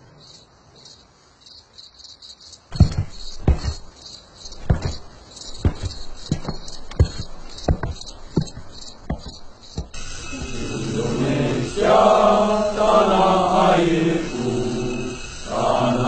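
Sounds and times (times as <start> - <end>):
sharp heavy thumps: 2.7 - 11.2.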